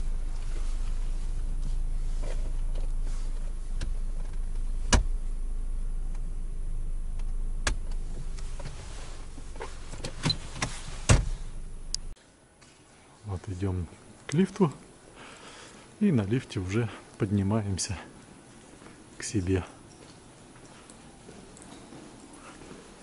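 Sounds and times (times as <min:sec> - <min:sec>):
car engine humming: 0:00.0 - 0:12.2.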